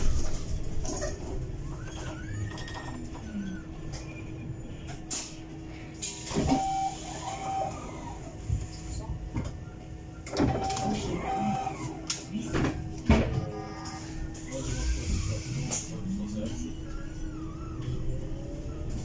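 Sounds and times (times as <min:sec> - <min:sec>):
bus electric hum: 0:00.0 - 0:19.0
voices: 0:10.4 - 0:19.0.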